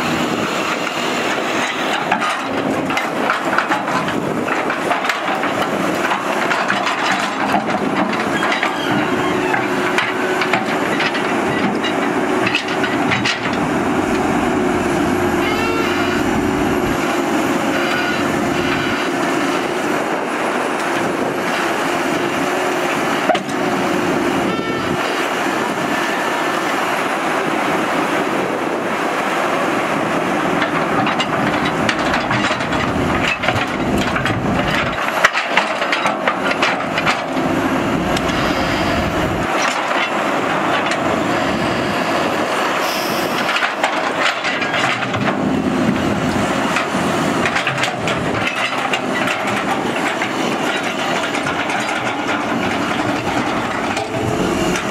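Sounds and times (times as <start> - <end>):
excavator diesel engine under load: 0.0 - 54.9
held tone: 15.2 - 17.0.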